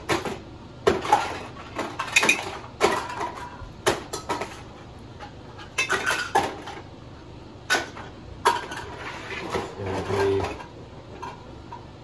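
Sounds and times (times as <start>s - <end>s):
items clattering in plastic bin: 7.7s - 10.7s.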